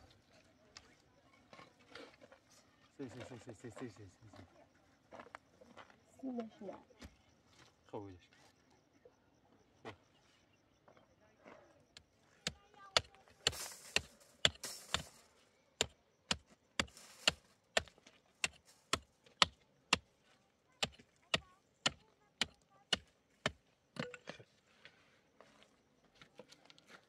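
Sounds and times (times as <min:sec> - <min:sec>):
hand tool striking: 0:12.4 - 0:15.2, 0:15.8 - 0:20.1, 0:20.8 - 0:24.3.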